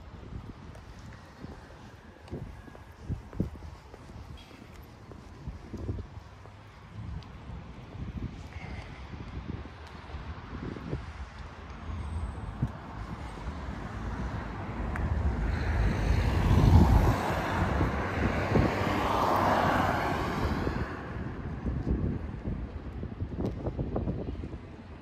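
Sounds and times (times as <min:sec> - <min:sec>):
wind rumble on microphone: 0:00.0 - 0:25.0.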